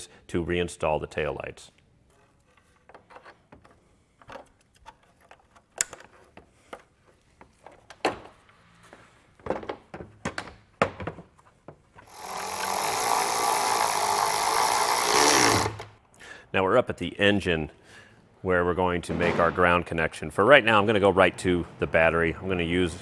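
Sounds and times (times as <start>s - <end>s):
cordless electric ratchet running: 12.1s - 15.8s.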